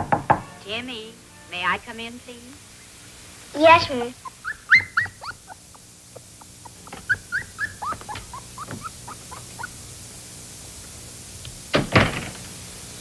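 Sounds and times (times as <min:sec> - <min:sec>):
wolf cub whimpering squeaks: 0:03.9 - 0:09.8.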